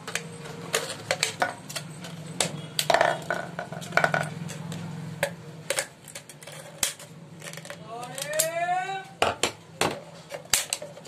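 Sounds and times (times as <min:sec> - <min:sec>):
plastic bottle crackling and clicking: 0:09.2 - 0:11.0.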